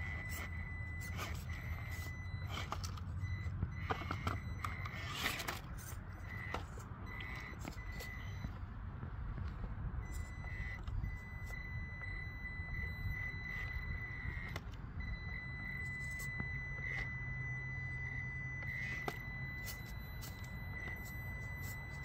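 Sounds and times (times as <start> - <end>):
electric motor whining: 0.0 - 8.6, 10.0 - 22.0.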